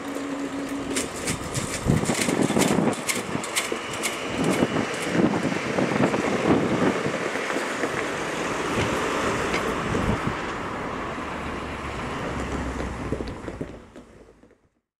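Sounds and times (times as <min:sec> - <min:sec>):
cars driving over crossing: 0:00.0 - 0:14.8.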